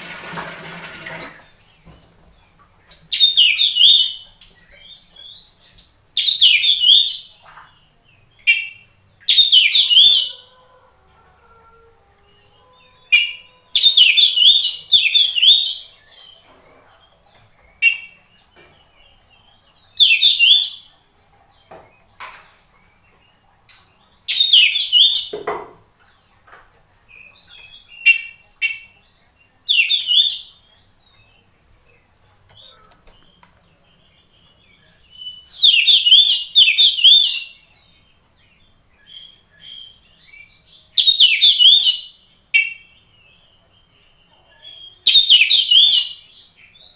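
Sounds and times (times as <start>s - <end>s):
bird whistled song: 6.2s - 7.3s, 24.3s - 25.4s, 34.8s - 37.6s, 41.0s - 42.9s, 44.8s - 46.9s.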